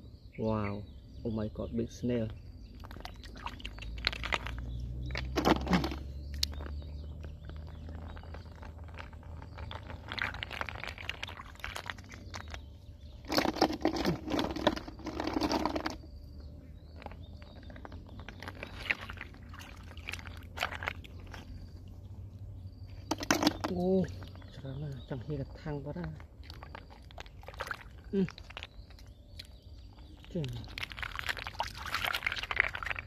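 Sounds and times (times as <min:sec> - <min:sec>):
water splashing and swishing: 0:02.8 - 0:12.6, 0:17.0 - 0:22.0, 0:25.6 - 0:29.0, 0:30.3 - 0:33.0.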